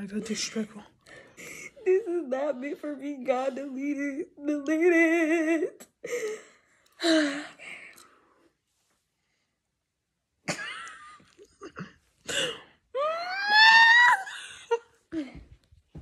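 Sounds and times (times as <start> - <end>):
girl high-pitched squeal: 13.0 - 14.4.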